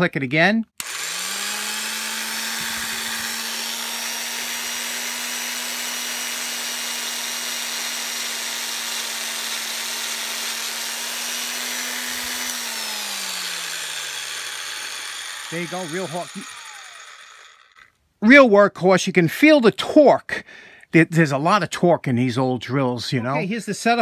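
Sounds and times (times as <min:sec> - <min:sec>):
electric drill boring wood: 0:00.8 - 0:18.0.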